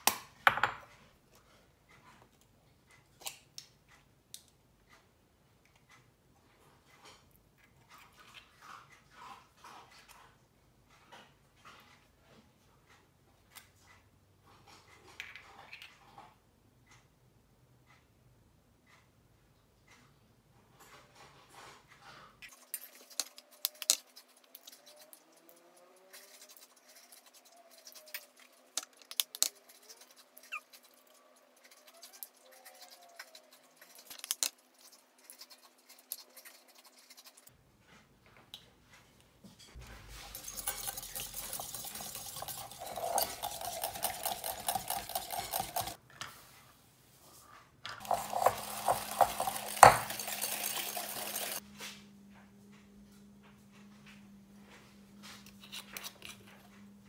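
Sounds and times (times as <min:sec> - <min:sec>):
wire whisk rattling in glass bowl: 0:40.1 - 0:46.0, 0:48.0 - 0:51.6.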